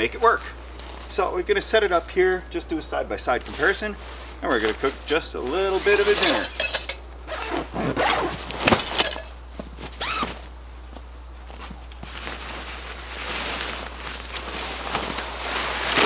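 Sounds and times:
nylon fabric rustling and scraping: 0.4 - 1.3, 3.2 - 6.4, 7.3 - 9.0, 9.7 - 10.6, 11.4 - 16.0
zipper: 7.3 - 8.8, 10.0 - 10.4.

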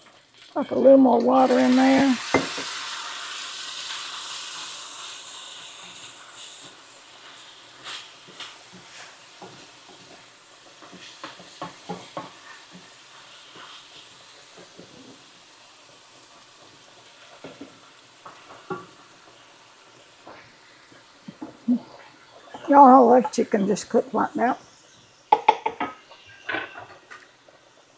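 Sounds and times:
chicken sizzling in a skillet: 0.0 - 27.9
wooden spatula scraping a pan: 7.8 - 15.2.

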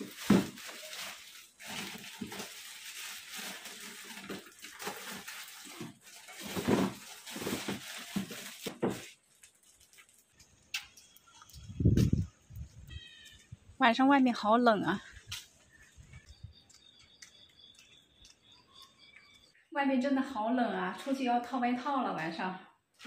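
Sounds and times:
plastic bag rustling: 0.0 - 13.5.

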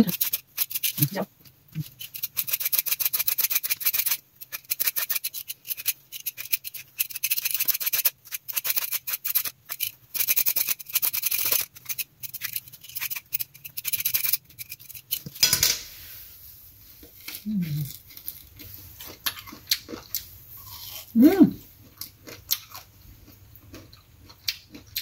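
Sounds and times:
vegetable peeler scraping mango: 0.0 - 1.2, 1.8 - 15.2.

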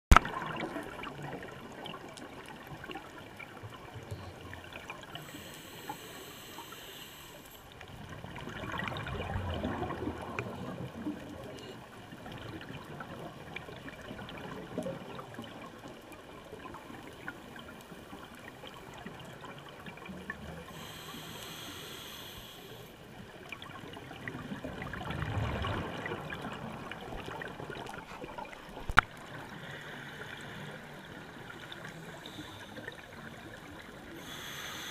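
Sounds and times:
exhaled bubbles rushing: 0.1 - 3.3, 7.9 - 11.4, 23.5 - 29.6
regulator breathing hiss: 5.2 - 7.7, 20.7 - 23.0, 34.1 - 34.9.

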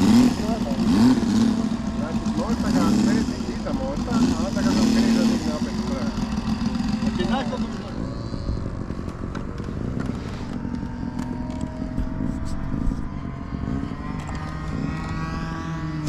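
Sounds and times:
model aircraft engine running: 0.0 - 16.0.

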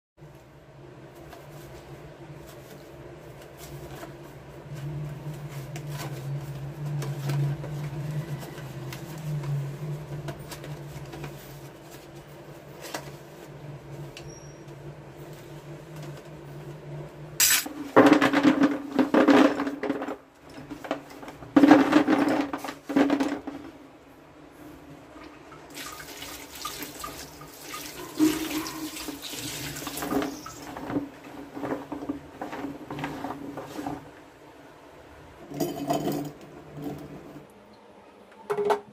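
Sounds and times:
water pouring into tub: 25.7 - 30.7.

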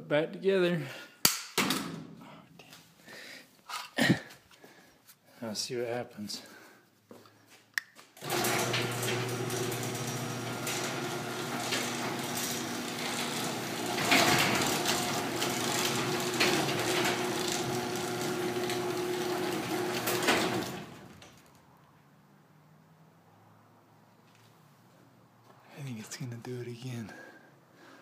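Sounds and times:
garage door opener motor humming: 8.2 - 21.4
garage door rattling up: 8.2 - 21.5.

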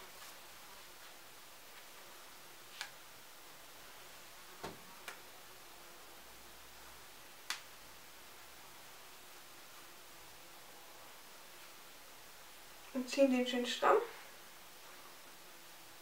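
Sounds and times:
room hiss: 0.0 - 16.0
hair tie snapping: 2.8 - 3.0, 7.5 - 7.7.

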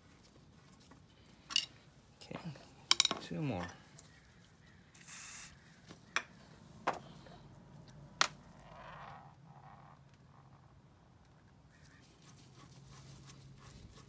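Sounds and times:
soft rubbing rustle: 0.0 - 1.4, 11.7 - 14.0
brief hiss: 5.0 - 5.6.

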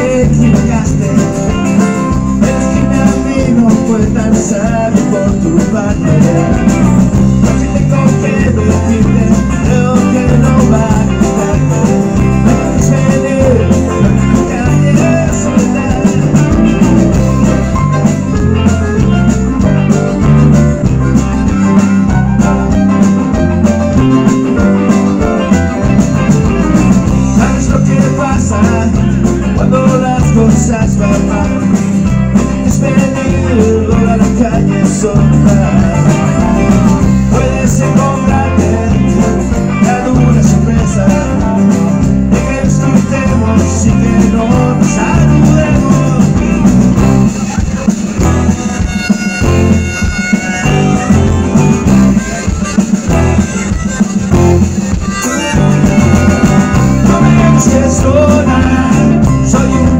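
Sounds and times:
bass guitar: 0.0 - 59.9
drums on a steady beat: 0.0 - 59.9
electric guitars: 0.0 - 59.9
harmonica: 31.3 - 59.9.

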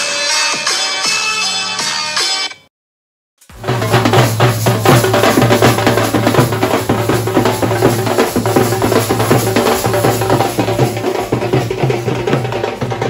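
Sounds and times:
drums beaten with sticks: 3.5 - 13.0.

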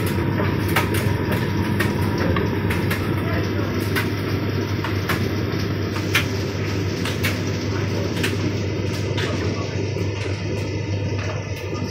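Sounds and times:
tumble dryer motor hum: 0.0 - 11.9.

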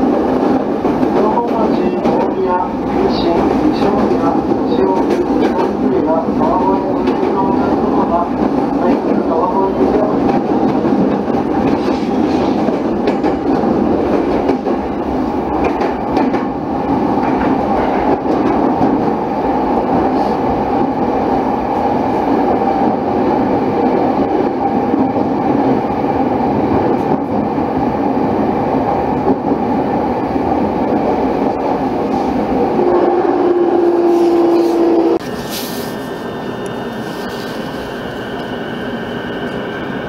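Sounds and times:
train wheels rumbling on rail: 0.0 - 40.0.

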